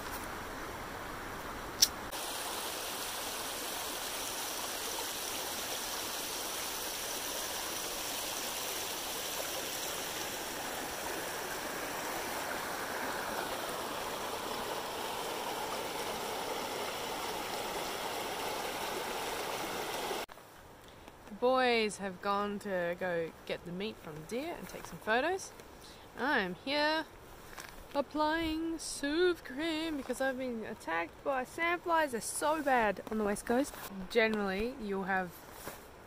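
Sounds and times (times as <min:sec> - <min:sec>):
stream running over rocks: 0:00.0 - 0:20.3.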